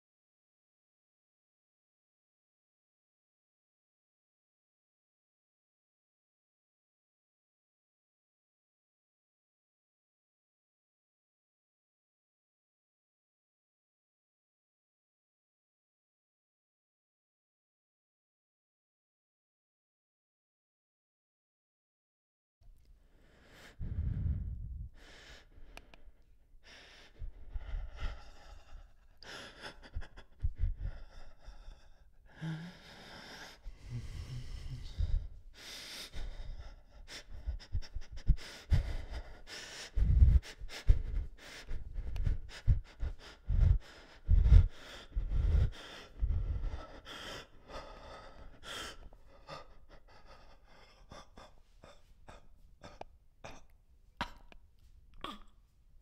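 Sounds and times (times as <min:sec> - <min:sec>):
person gasping and breathing hard: 0:23.1 - 0:54.6.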